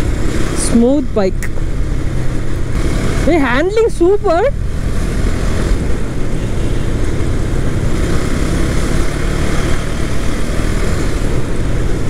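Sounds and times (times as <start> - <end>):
motorcycle engine running: 0.0 - 12.0
wind rushing over microphone: 0.0 - 12.0.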